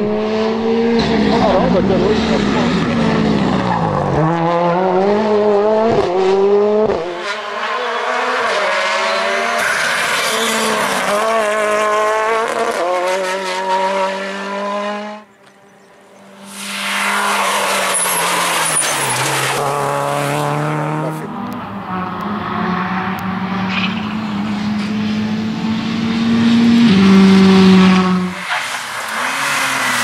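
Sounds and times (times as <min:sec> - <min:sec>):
rally car engine revving: 0:00.0 - 0:30.0
tyre squeal: 0:07.3 - 0:10.8, 0:16.6 - 0:19.6.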